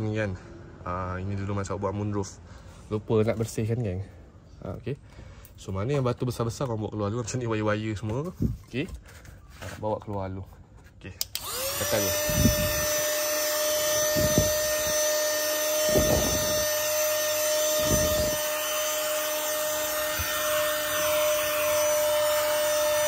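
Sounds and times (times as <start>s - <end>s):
handheld vacuum cleaner whine: 11.3s - 23.0s.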